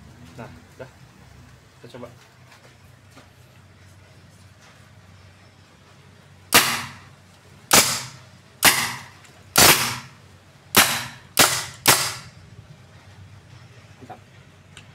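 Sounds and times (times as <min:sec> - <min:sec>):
suppressed air rifle shots: 0:06.5 - 0:07.1, 0:07.7 - 0:12.3.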